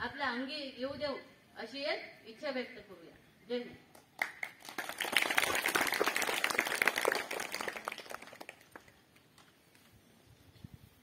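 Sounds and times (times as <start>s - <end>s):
children applauding: 4.2s - 9.0s.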